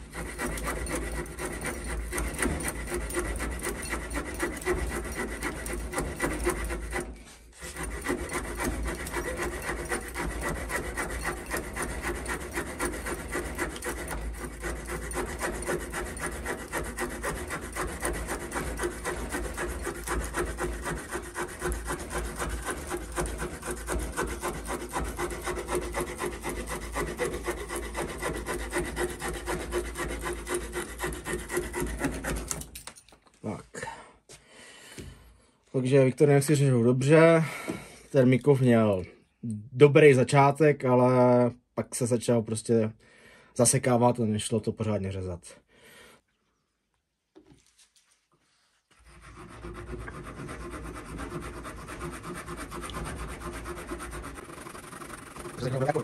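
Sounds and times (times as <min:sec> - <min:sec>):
saw rasping through branch: 0:00.0 - 0:33.0, 0:48.9 - 0:56.0.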